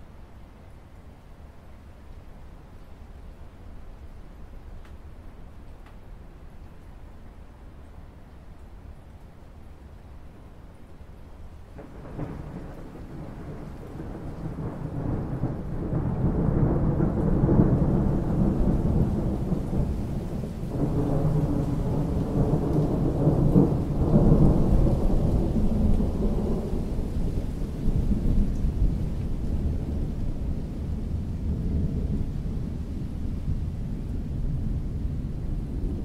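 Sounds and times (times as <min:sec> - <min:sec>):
rain: 0:00.0 - 0:36.0
thunder rumbling: 0:11.8 - 0:36.0.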